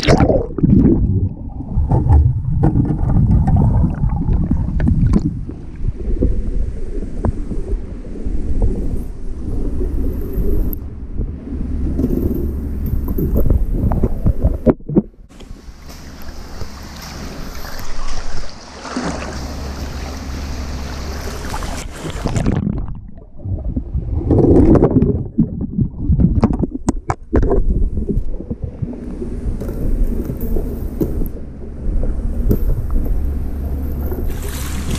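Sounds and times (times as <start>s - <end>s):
pool water splashing: 15.3s - 23.4s, 32.9s - 34.9s.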